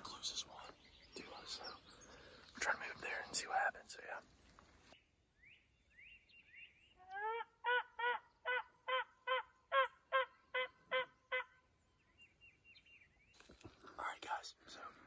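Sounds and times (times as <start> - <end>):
turkey yelping: 7.2 - 11.5.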